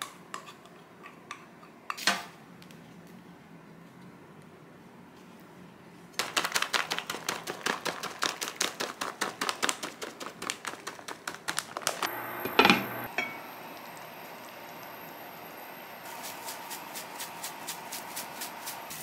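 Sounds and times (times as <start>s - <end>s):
cheese pattering onto tortilla: 6.2s - 12.1s
plastic bag crinkling: 6.2s - 12.1s.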